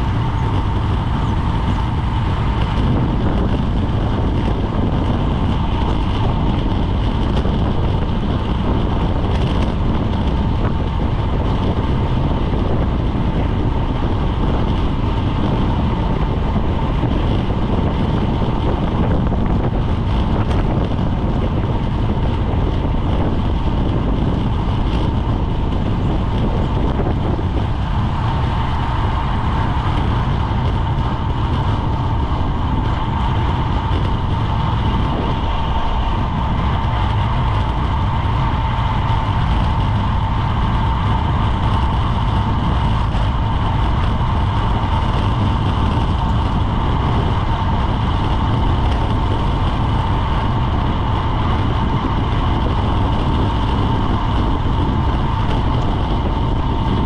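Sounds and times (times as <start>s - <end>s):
road noise: 0.0s - 57.0s
thin steady whine: 0.0s - 57.0s
wind rush: 0.0s - 57.0s.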